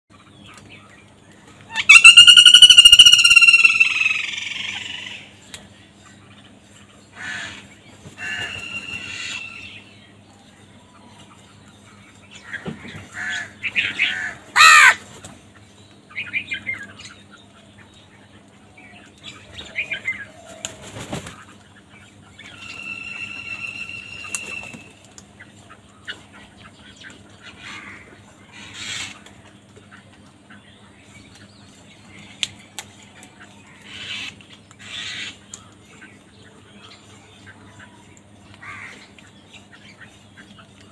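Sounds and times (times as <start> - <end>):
crows cawing: 7.2 - 7.6, 13.1 - 15.0, 38.6 - 39.0
wings fluttering: 20.4 - 21.6, 22.7 - 25.3.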